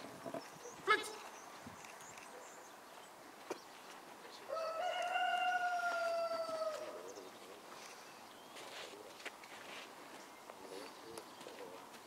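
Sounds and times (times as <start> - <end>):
rooster crowing: 4.5 - 7.0.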